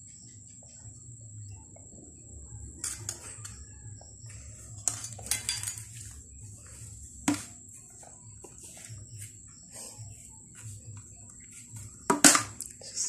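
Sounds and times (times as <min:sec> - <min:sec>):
spoon clinking on a plate: 0:02.8 - 0:04.1, 0:04.8 - 0:06.2.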